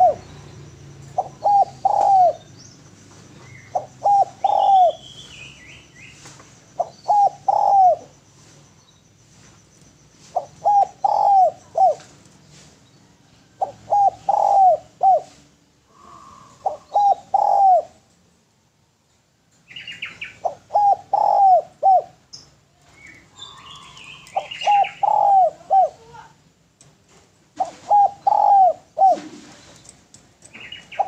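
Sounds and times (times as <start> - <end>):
dove cooing: 0.0 - 2.5, 3.4 - 5.2, 6.7 - 8.6, 10.2 - 12.2, 13.5 - 18.1, 20.1 - 22.3, 23.0 - 26.4, 27.5 - 31.0
high-pitched bird chirps: 22.4 - 26.0.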